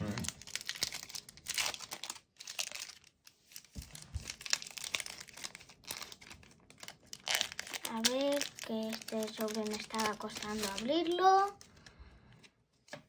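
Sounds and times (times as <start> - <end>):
foil wrapper crinkling: 0.0 - 11.9.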